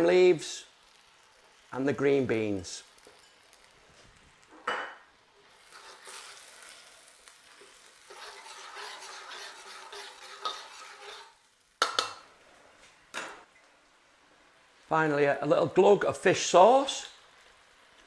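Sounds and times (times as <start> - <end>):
curry simmering and sizzling: 0.0 - 18.0
metal clinking on wok: 2.9 - 3.7
spatula scraping a wok: 5.4 - 12.0.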